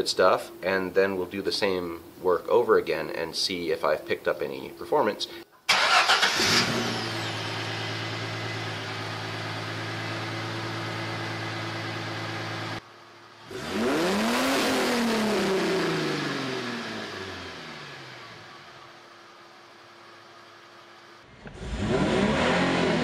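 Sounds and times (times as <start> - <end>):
car engine idling and revving: 5.8 - 23.0.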